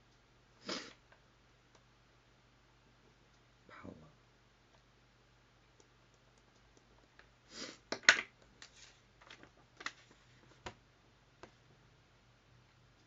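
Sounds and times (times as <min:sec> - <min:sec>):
paper rustling: 0:08.6 - 0:10.8.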